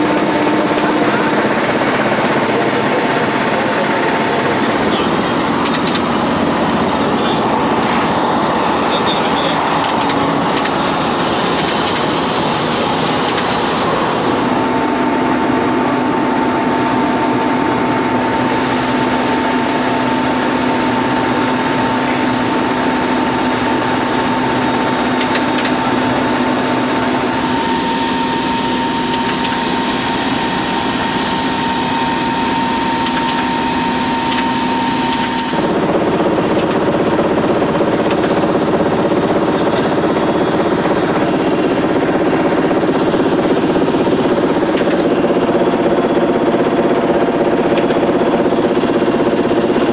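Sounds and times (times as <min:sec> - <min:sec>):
helicopter engine and rotor drone: 0:00.0 - 0:49.9.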